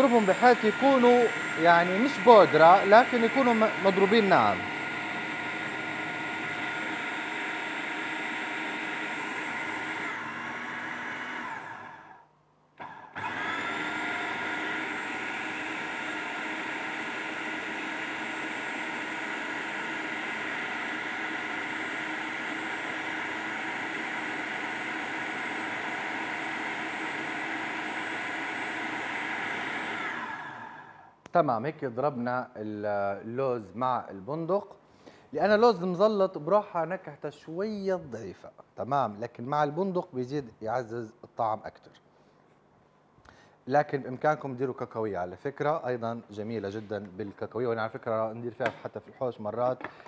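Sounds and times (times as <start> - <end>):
food processor motor whining: 0.0 - 31.2.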